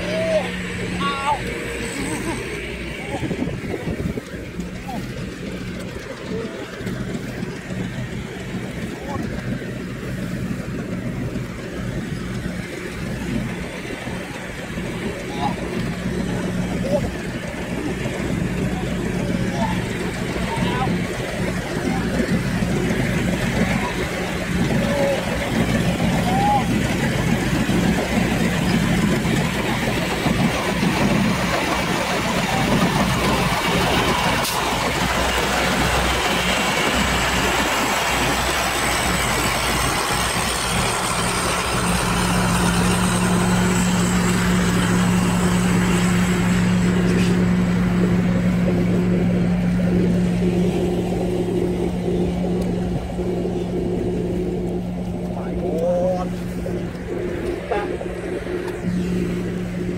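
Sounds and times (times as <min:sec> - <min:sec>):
engine running: 0:00.0 - 0:59.9.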